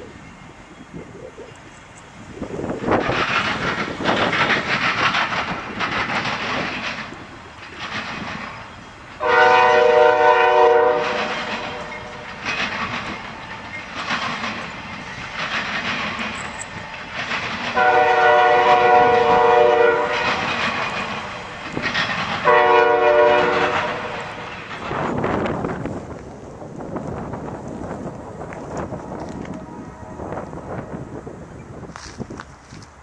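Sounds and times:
freight train wheels rumbling on rails: 0:00.0 - 0:33.0
locomotive air horn blasts: 0:09.2 - 0:12.2, 0:17.8 - 0:20.4, 0:22.4 - 0:24.4.

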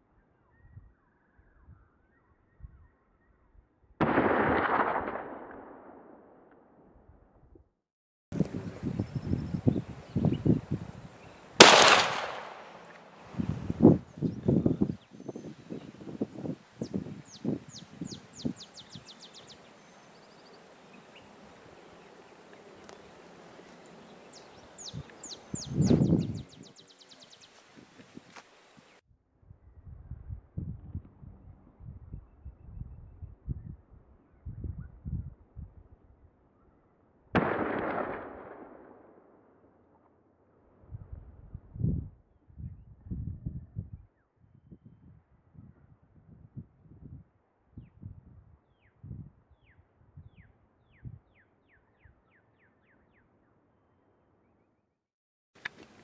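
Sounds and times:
faint outdoor background: 0:00.0 - 0:56.0
gunshot: 0:04.0 - 0:06.5, 0:11.6 - 0:12.8, 0:37.4 - 0:39.4.

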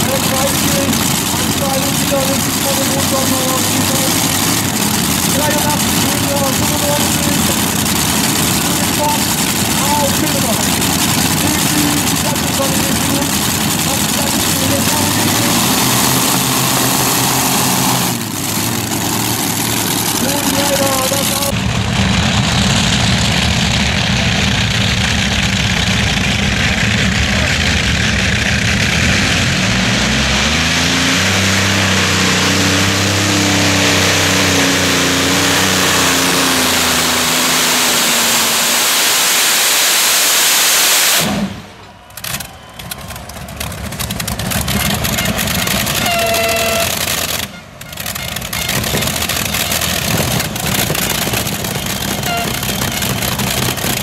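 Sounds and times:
lower noisier engine: 0:00.0 - 0:54.0
tractor engines at full throttle: 0:00.0 - 0:54.0.

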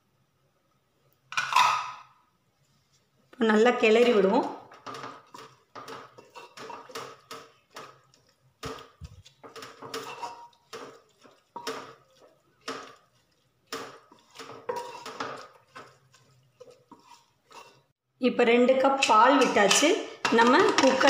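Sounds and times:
wooden spatula scraping a pot: 0:03.8 - 0:18.0.

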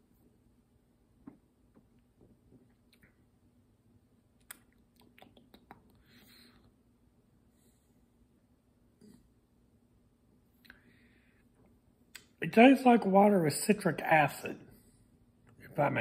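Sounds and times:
wet mouth clicks and lip smacks: 0:04.4 - 0:06.0.

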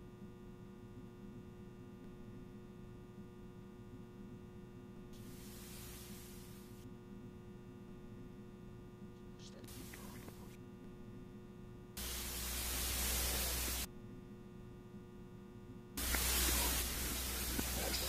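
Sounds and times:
electrical mains hum: 0:00.0 - 0:18.0
loud hiss with low rumble: 0:05.2 - 0:06.8, 0:09.6 - 0:10.5, 0:12.0 - 0:13.9, 0:16.0 - 0:18.0.

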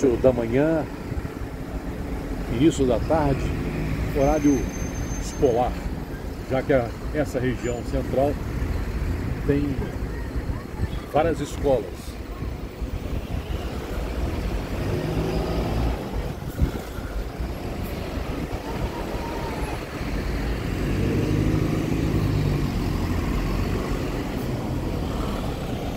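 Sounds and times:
bus passing close: 0:00.0 - 0:25.9
car and bus engines: 0:00.0 - 0:25.9.

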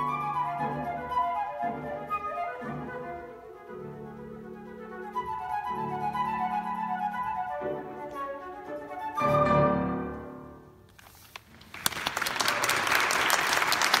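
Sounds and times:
flute and piano: 0:00.0 - 0:10.8
audience applauding: 0:11.3 - 0:14.0.

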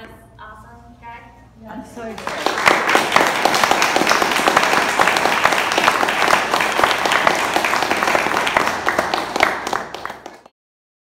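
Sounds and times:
audience applauding: 0:02.2 - 0:10.5.

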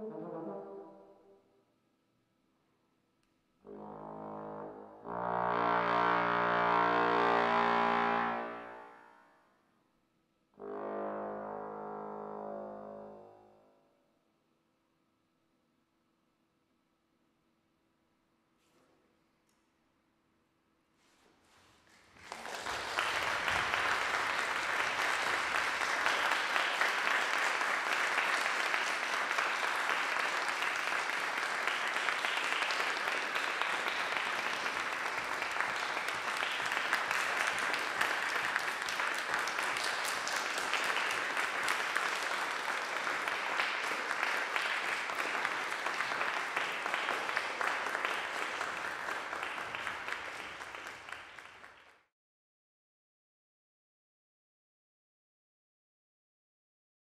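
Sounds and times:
audience applauding: 0:21.9 - 0:52.0.

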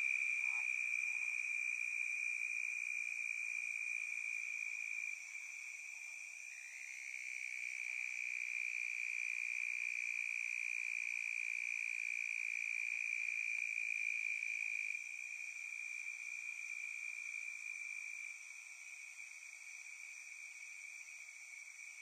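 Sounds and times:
insects trilling: 0:00.0 - 0:02.1.

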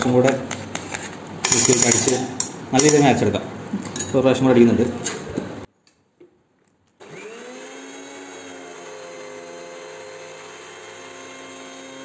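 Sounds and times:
mixer grinder motor whine: 0:07.0 - 0:12.0.

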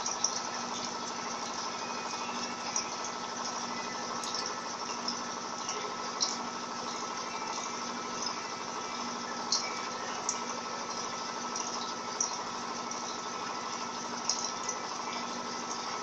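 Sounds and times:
washing machine spinning: 0:00.0 - 0:16.0.

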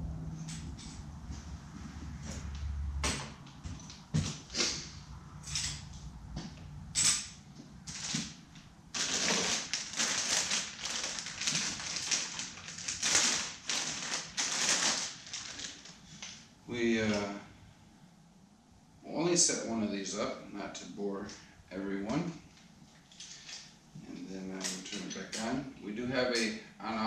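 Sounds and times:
plastic bag crinkling: 0:07.9 - 0:16.5
plastic packaging crinkling: 0:07.9 - 0:16.5.

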